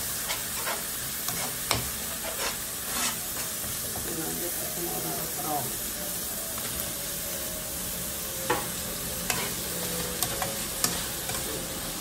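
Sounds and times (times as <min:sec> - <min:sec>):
sauce sizzling in a frying pan: 0:00.0 - 0:12.0
metal spatula scraping pan: 0:00.2 - 0:03.5, 0:09.2 - 0:11.5.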